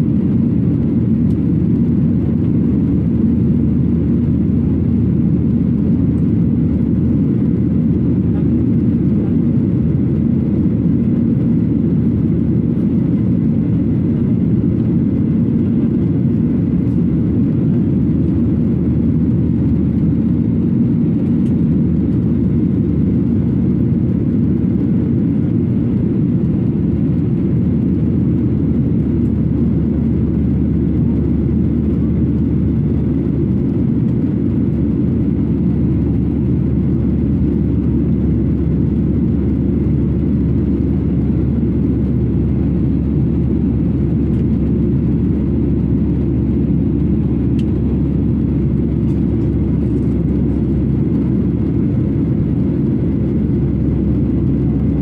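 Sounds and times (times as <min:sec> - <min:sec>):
jet engine cabin rumble: 0:00.0 - 0:55.0.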